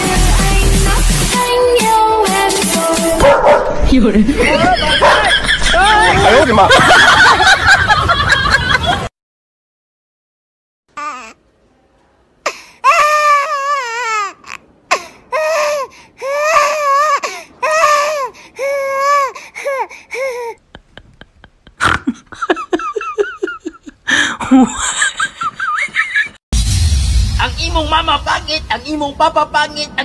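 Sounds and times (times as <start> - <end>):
high-pitched crying voice: 12.8 - 20.6.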